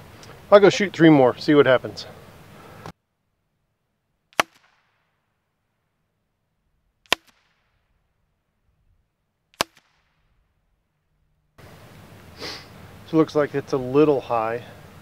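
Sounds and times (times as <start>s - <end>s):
bullets striking paper target: 4.3s - 5.1s, 7.0s - 7.8s, 9.5s - 10.3s.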